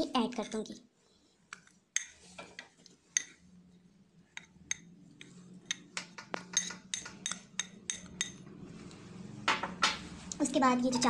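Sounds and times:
spoon clinking against bowl: 5.7 - 8.4.

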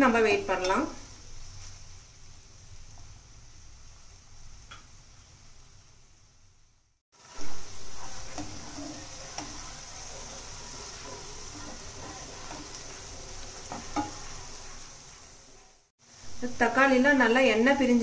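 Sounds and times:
onions and tomatoes sizzling in oil: 0.0 - 18.0
spatula scraping pan: 7.6 - 15.9.

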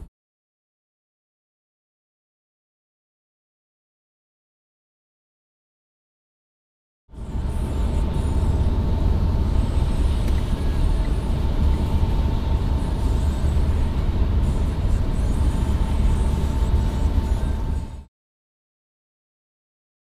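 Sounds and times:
road noise inside a car: 7.1 - 18.1.

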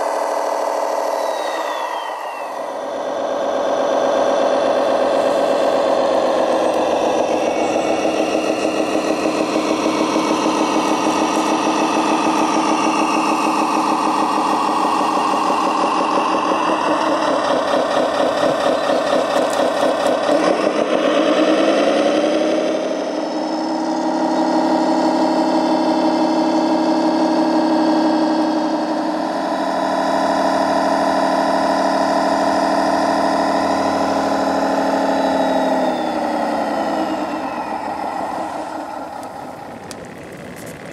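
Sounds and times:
toy motor whine: 0.8 - 17.5.

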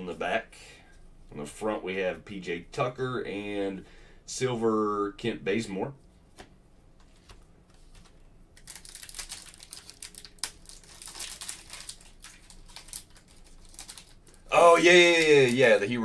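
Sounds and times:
foil wrapper crinkling: 8.6 - 16.0
foil wrapper tearing: 8.6 - 16.0.

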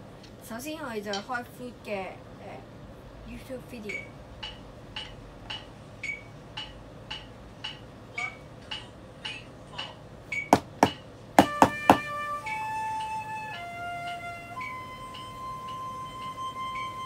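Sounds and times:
metronome clicks from a phone: 3.9 - 9.4
sustained backing music notes: 11.1 - 17.0.

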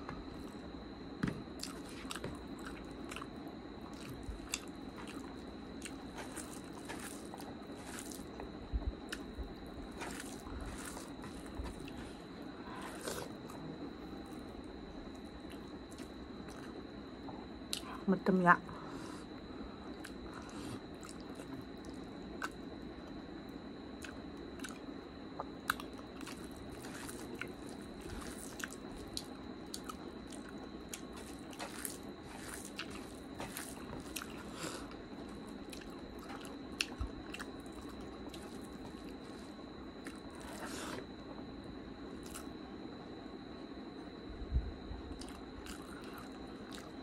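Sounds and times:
faint high-pitched whine: 0.0 - 47.0
wet chewing and mouth smacks: 24.0 - 24.8, 25.4 - 34.5, 35.4 - 39.3, 42.2 - 42.5, 45.2 - 46.9.

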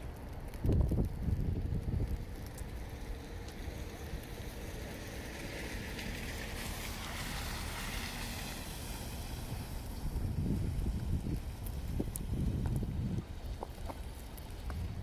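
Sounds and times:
wind rumble on microphone: 0.0 - 15.0
tyres hissing on slush: 5.2 - 9.8.

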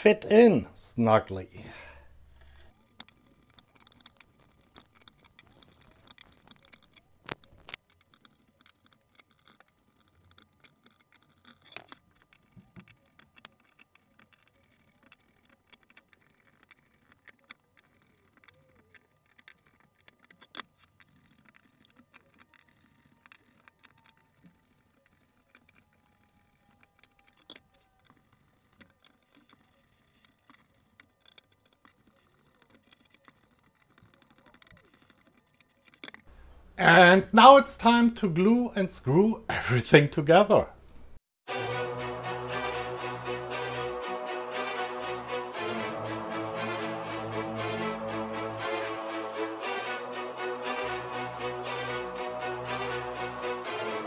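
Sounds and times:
hand tool clicking and scraping wood: 2.1 - 36.8.

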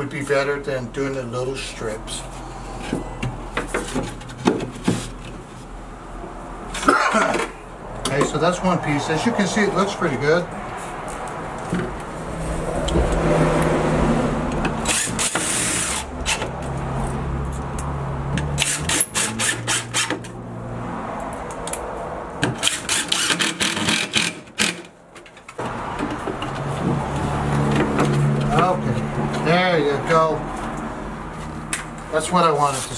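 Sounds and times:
sharp knocks and clicks: 22.4 - 29.4.

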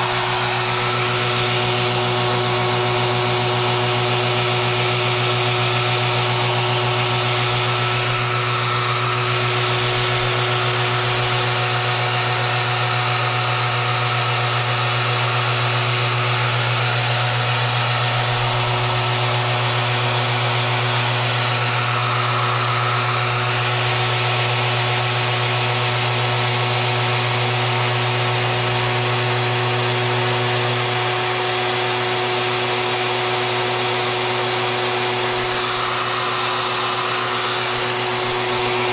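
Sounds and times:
router motor whine and hum: 0.0 - 38.9.

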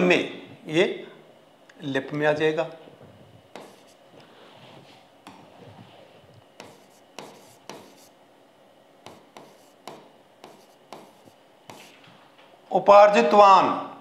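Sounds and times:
faint stylus scratching: 3.5 - 8.1, 9.1 - 12.0.

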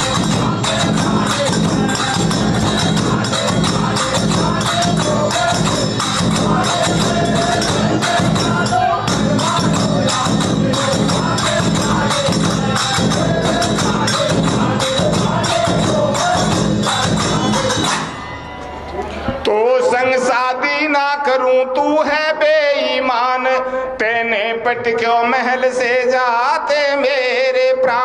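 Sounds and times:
jingling hand percussion: 0.0 - 19.0
repeated melody line: 0.0 - 19.0.

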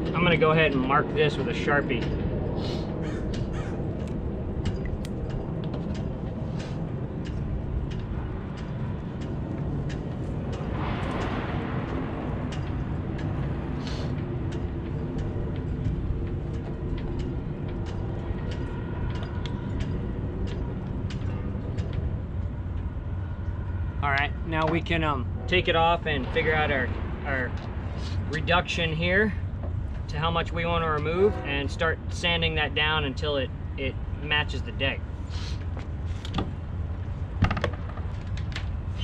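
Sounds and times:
low engine rumble: 0.0 - 39.0
light clicks and ticks: 3.3 - 24.8.

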